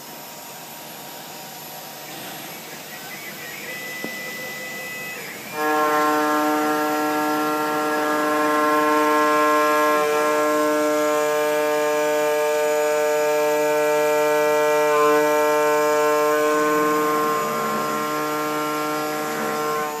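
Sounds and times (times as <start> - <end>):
end mill cutting metal: 1.3 - 20.0
singing tone with overtones: 2.1 - 8.3.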